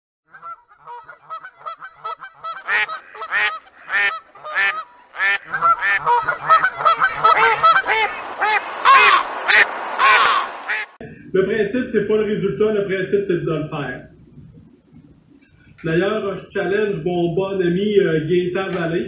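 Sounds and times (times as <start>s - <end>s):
flock of birds calling: 0.4s - 11.0s.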